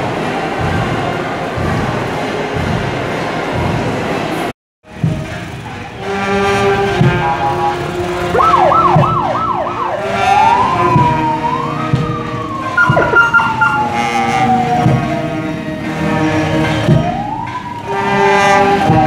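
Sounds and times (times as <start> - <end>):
marching band playing: 6.0 - 17.2
electronic siren yelping and wailing: 7.1 - 15.1.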